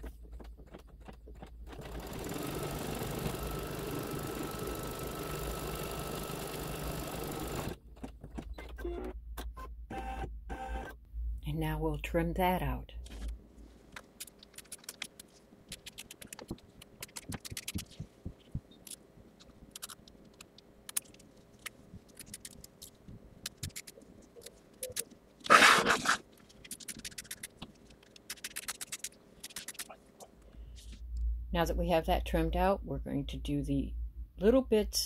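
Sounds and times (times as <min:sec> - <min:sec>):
faint steady hum: 0:29.0 - 0:35.0.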